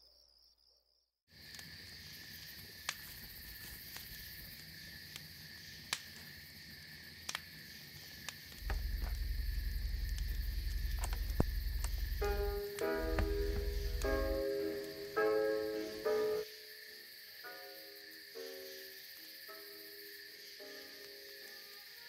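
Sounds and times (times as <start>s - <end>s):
crickets chirring: 0.0s - 22.0s
campfire wood popping: 1.4s - 16.4s
loud low rumble: 8.6s - 15.1s.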